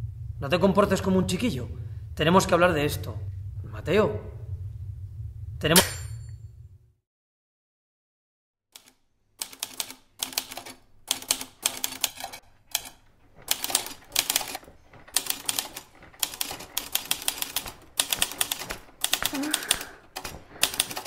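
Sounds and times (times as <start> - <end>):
manual typewriter typing: 8.8 - 21.0.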